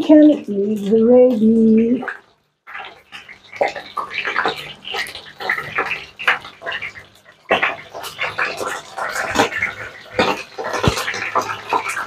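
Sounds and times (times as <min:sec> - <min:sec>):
chicken sizzling in hot oil: 0:01.8 - 0:12.0
oil spattering pops: 0:07.5 - 0:12.0.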